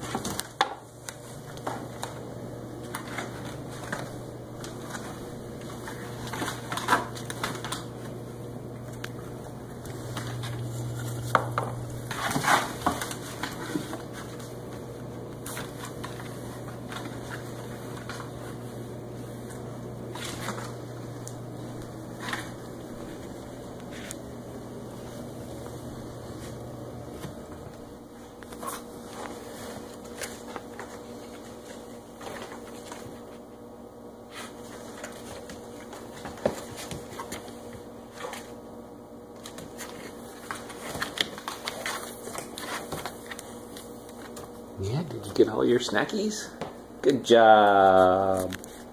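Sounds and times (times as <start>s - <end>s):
low steady hum: 0.0s - 48.9s
dog rummaging in cardboard boxes: 2.8s - 8.1s, 12.0s - 14.5s, 34.3s - 38.6s, 39.4s - 43.5s.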